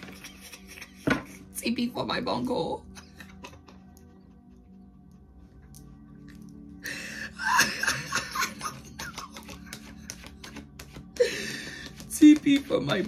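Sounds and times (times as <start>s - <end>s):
soft background music: 0.0s - 13.0s
woman laughing: 2.8s - 4.1s, 7.2s - 10.0s.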